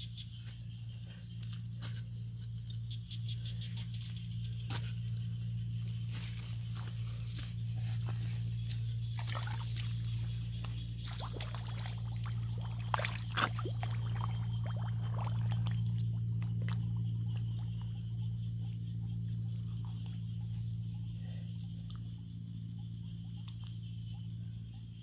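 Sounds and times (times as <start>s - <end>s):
steady low hum: 0.0s - 25.0s
mud and water squelching: 1.4s - 18.0s
sharp splashes: 9.1s - 10.3s, 11.0s - 16.9s.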